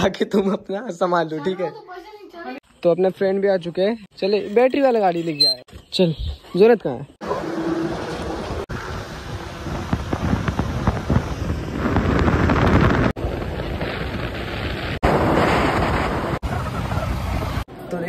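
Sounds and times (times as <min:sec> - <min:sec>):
road and traffic noise: 0:07.2 - 0:11.4
wind rushing over microphone: 0:07.3 - 0:17.7.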